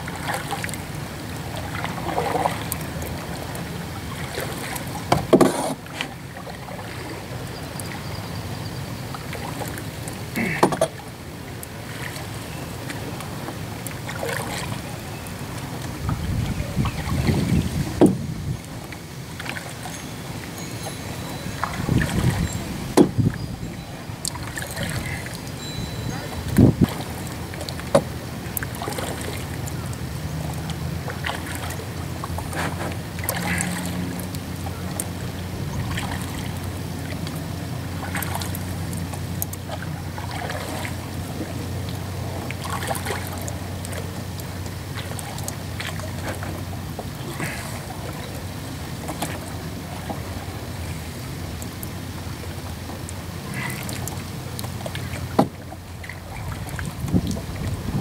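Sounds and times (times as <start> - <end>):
paddle splashing in water: 0.0 - 58.0
steady low rumble: 11.0 - 55.1.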